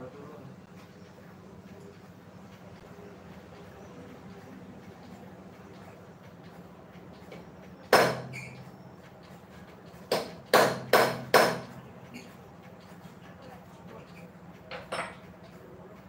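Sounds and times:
hammer clanging on steel: 7.9 - 8.6, 10.1 - 11.8, 14.7 - 15.3.

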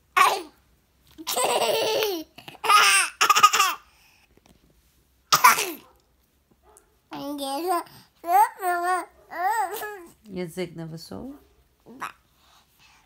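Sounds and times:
toddler girl laughing: 1.2 - 3.8.

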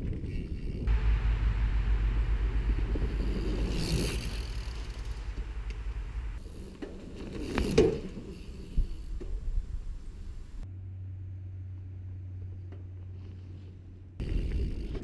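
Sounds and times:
wind rumble on microphone: 0.0 - 6.4, 8.2 - 10.6
mountain bike rushing past: 0.0 - 10.6.

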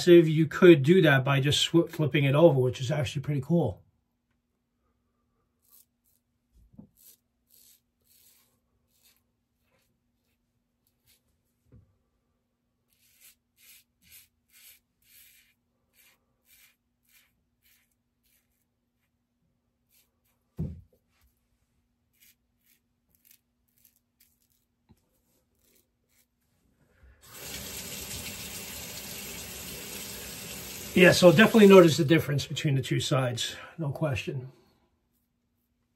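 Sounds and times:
razor scraping stubble: 5.6 - 11.2, 12.9 - 19.2, 19.8 - 20.5, 22.1 - 24.7, 25.4 - 26.4
tap water running: 27.2 - 32.1.

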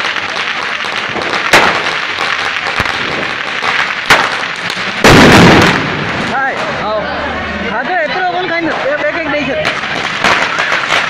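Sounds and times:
sharp firecracker bangs: 0.0 - 6.8, 9.6 - 11.0
firecrackers crackling: 0.0 - 11.0.

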